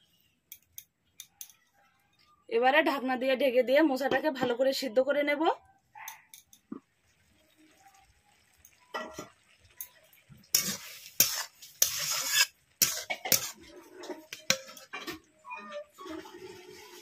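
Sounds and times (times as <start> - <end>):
metal spatula scraping metal pan: 10.5 - 17.0.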